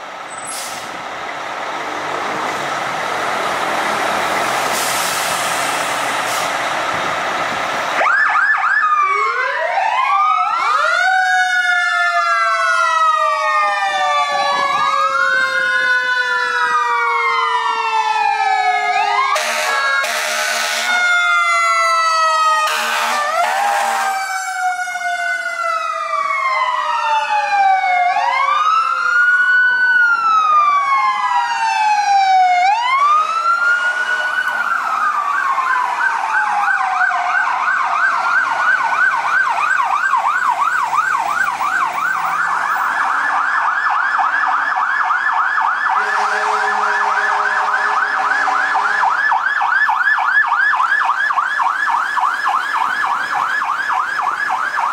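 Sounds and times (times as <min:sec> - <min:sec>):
fire truck sirens wailing: 0:00.0 - 0:54.9
low steady horn: 0:19.4 - 0:21.0, 0:22.6 - 0:24.2, 0:46.0 - 0:49.1.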